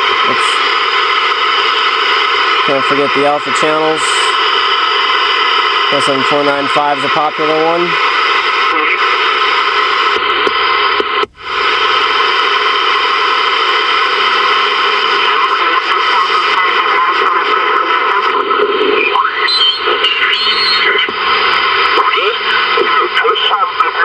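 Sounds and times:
garbled radio voice: 0.0s - 1.2s, 2.6s - 4.4s, 5.8s - 9.4s, 15.0s - 24.0s
radio static hiss: 0.0s - 24.0s.

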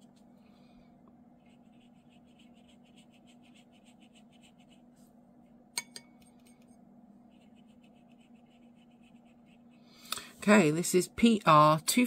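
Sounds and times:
low steady hum: 0.0s - 12.0s
brush scrubbing on paper: 1.4s - 5.0s, 7.3s - 9.8s.

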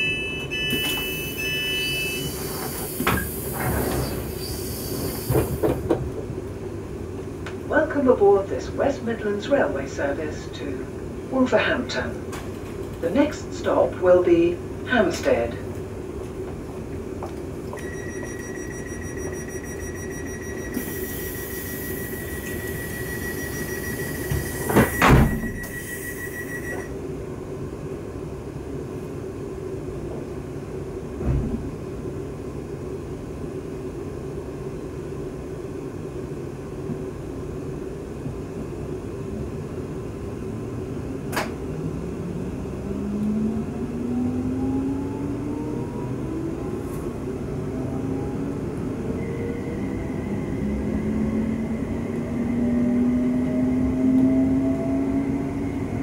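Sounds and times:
door-closing warning beeps: 0.0s - 5.6s, 17.8s - 26.9s
train electrical hum: 0.0s - 56.0s
doors shutting thump: 24.3s - 25.6s.

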